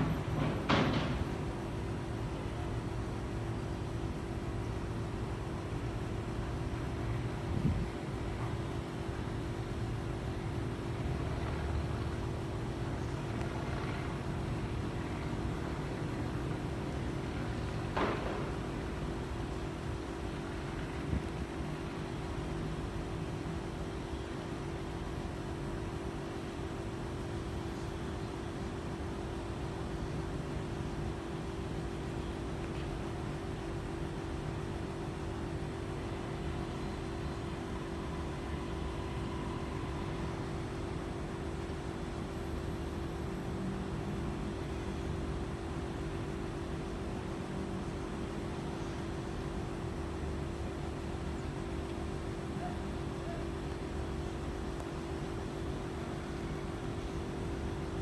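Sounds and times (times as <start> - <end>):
distant city rumble: 0.0 - 58.0.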